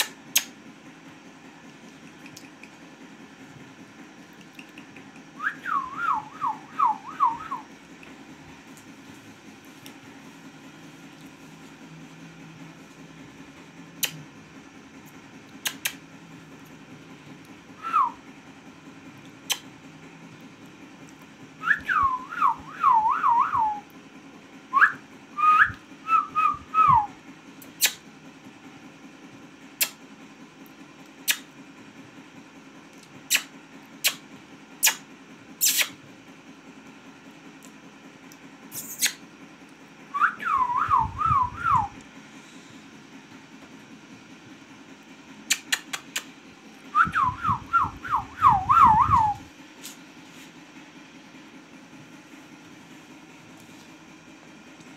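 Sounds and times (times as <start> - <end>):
steady low hum: 0.0 - 54.9
sharp clicks: 4.3 - 5.4, 15.6 - 16.0, 45.5 - 46.3
warbling whistles: 5.4 - 7.7, 17.8 - 18.2, 21.6 - 23.9, 24.7 - 27.2, 40.1 - 42.0, 46.9 - 49.5.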